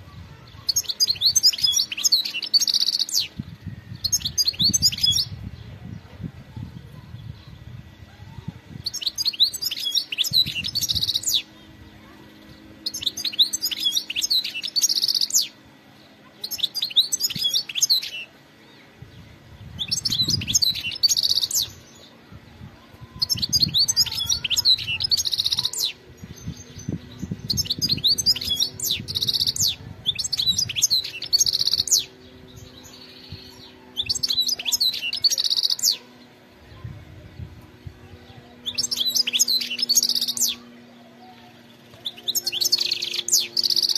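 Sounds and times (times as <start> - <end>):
bird twittering song: 0.0 - 43.9.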